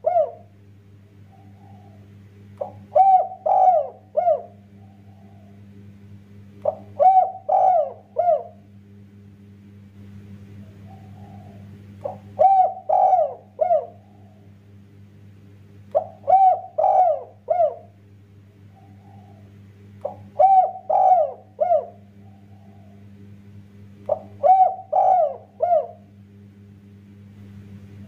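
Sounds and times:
dove cooing: 0.0 - 0.6, 1.2 - 5.7, 6.6 - 8.7, 10.6 - 14.6, 15.9 - 18.0, 18.6 - 23.1, 24.0 - 26.2.

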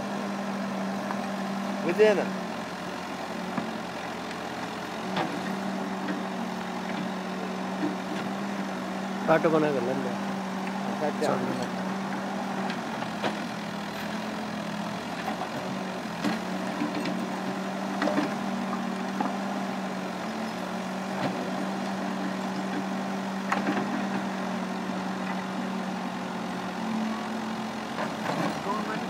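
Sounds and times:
diesel engine humming: 0.0 - 29.0.

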